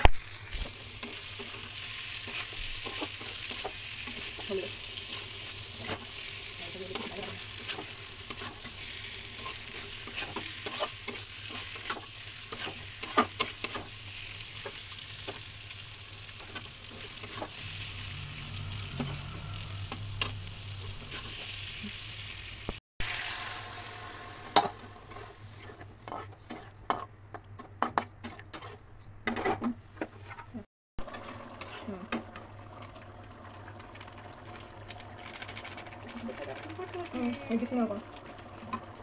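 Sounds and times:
food sizzling in a pan: 0.0s - 27.1s, 31.0s - 39.0s
spatula scraping and clicking on pan: 0.6s - 14.0s, 24.6s - 32.3s.

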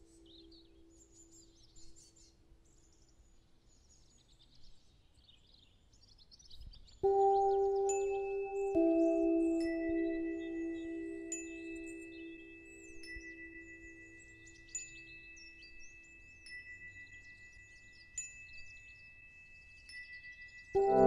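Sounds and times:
ambient background music: 7.0s - 14.5s, 20.8s - 21.0s
bell-like high notes: 7.0s - 17.6s, 18.4s - 21.0s.

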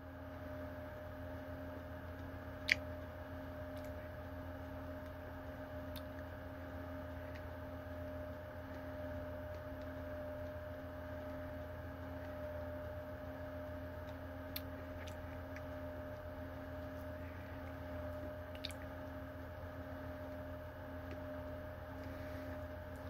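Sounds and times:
room hum with faint tone: 0.0s - 23.0s.

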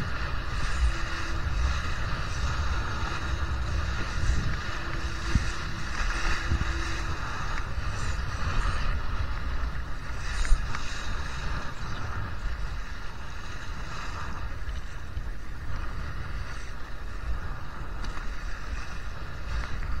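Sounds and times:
faint steady hum: 0.0s - 20.0s
wind buffeting microphone: 0.0s - 20.0s.

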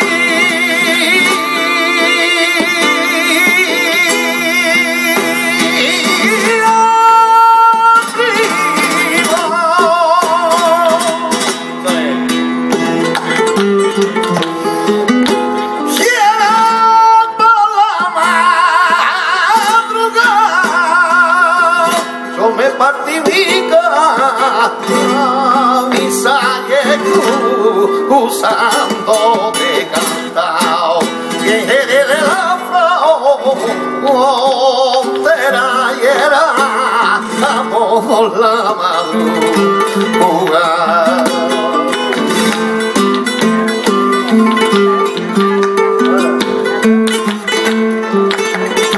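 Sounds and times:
man singing: 0.0s - 12.5s, 15.5s - 48.9s
flamenco guitar: 0.0s - 48.9s
handclaps: 12.7s - 15.8s, 34.8s - 36.0s, 39.6s - 48.9s.

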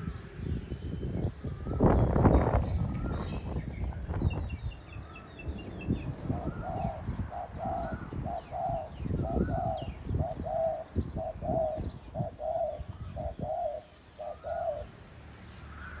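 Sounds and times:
dove cooing: 6.0s - 15.1s.

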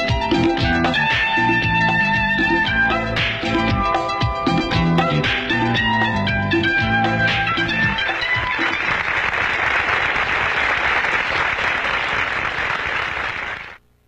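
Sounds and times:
music: 0.0s - 9.6s
audience applause: 8.3s - 13.8s.

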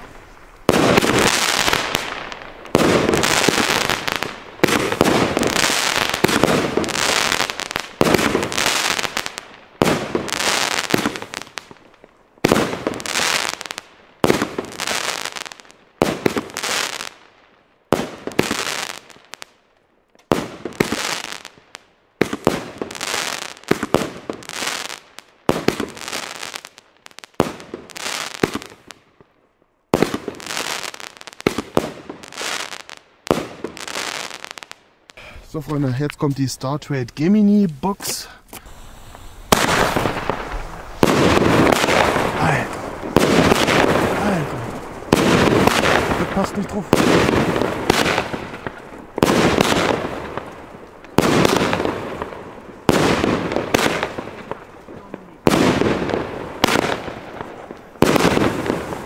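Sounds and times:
firework bangs: 0.0s - 17.3s, 17.9s - 19.6s, 20.2s - 29.1s, 29.9s - 36.4s, 38.0s - 59.0s.

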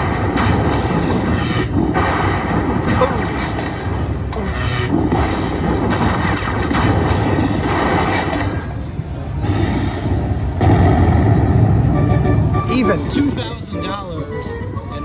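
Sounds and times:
slot machine music and effects: 2.8s - 9.0s, 11.5s - 15.0s.

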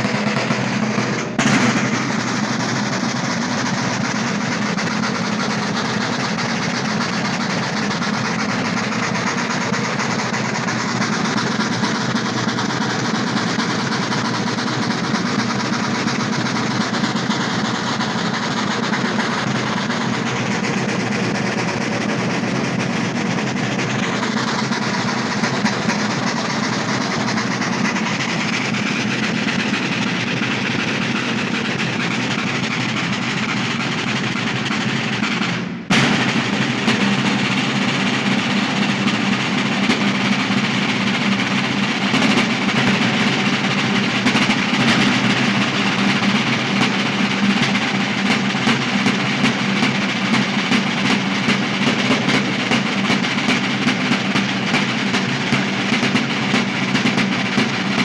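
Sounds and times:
ensemble of side drums beating: 0.0s - 58.0s.

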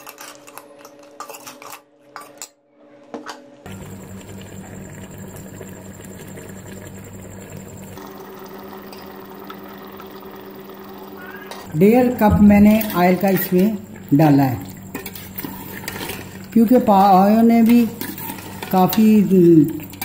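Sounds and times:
ladle scraping a metal pot: 0.0s - 2.4s, 14.9s - 16.5s, 17.5s - 20.0s.

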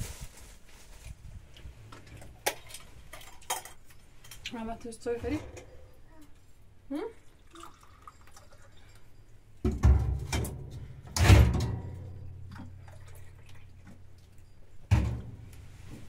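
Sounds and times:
low ringing: 5.0s - 6.9s.

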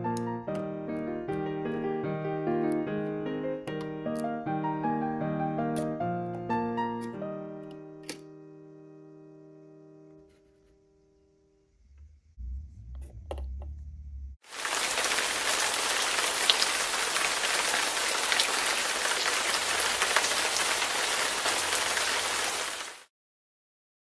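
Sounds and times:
water splattering into sink: 14.5s - 22.7s.

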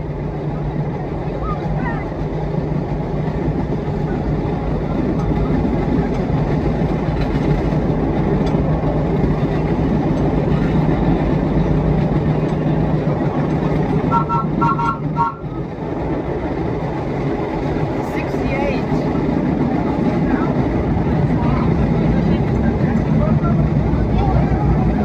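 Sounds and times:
subway train rumbling: 0.0s - 25.0s.

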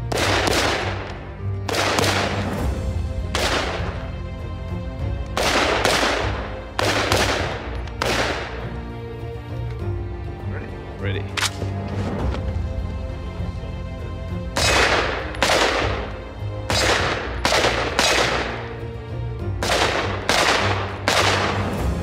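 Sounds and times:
rifle shots echoing: 0.0s - 2.6s, 3.3s - 4.0s, 5.4s - 8.6s, 14.6s - 16.1s, 16.7s - 18.8s, 19.6s - 21.8s
background music: 0.0s - 22.0s.

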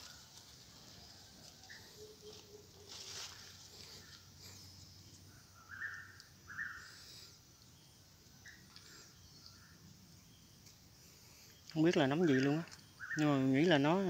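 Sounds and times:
faint whistled bird calls: 5.2s - 10.6s, 11.4s - 13.4s.

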